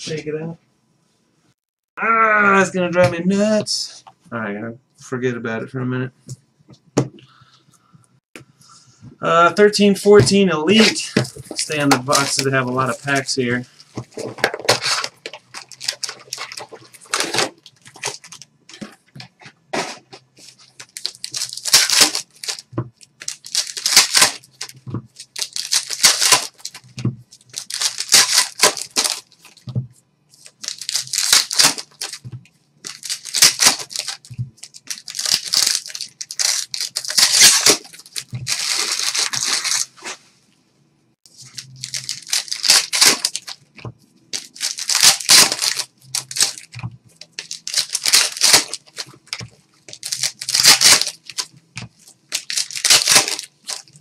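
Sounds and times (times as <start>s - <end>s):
card pack wrappers ripping: 10.7s - 18.5s, 19.8s - 29.6s, 30.4s - 32.2s, 32.8s - 40.1s, 41.3s - 43.6s, 44.3s - 54.0s.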